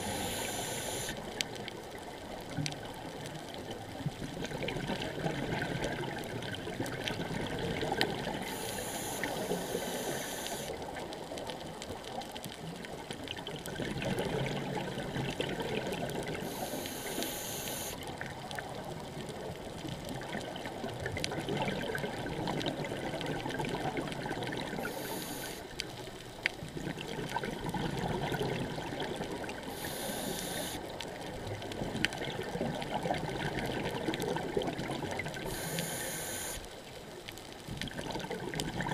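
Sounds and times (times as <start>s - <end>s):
regulator hissing underwater: 0.0s - 1.3s, 8.3s - 10.8s, 16.4s - 18.0s, 24.7s - 25.7s, 29.7s - 30.9s, 35.4s - 36.7s
exhaled air bubbling: 0.0s - 11.2s, 13.2s - 25.8s, 26.6s - 36.6s, 37.6s - 38.9s
crackle of reef clicks: 0.0s - 38.9s.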